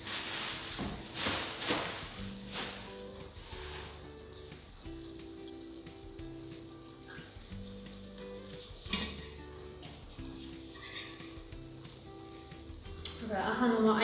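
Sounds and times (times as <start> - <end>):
dough sizzling in hot oil: 0.0 - 14.0
utensil clinking against pot: 8.8 - 9.4, 10.7 - 11.4.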